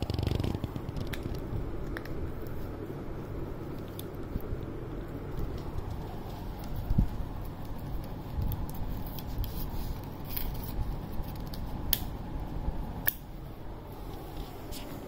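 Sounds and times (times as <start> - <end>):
puppy gnawing plastic toothbrush: 3.6 - 12.1.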